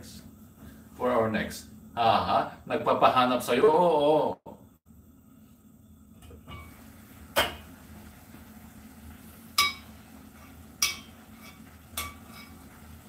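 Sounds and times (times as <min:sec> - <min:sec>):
metal spoon clinking in pot: 0:09.6 - 0:09.9, 0:10.8 - 0:12.6
pot lid clinking on pot: 0:09.6 - 0:09.9, 0:10.8 - 0:12.6.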